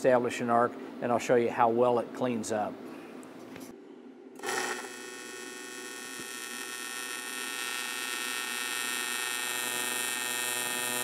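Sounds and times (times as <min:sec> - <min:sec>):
welding arc buzzing: 0:04.4 - 0:11.0.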